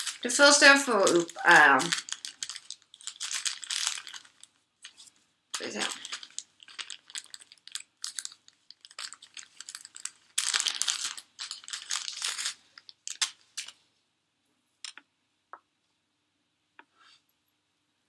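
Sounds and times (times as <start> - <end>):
plastic bag crinkling: 0.0 - 13.8.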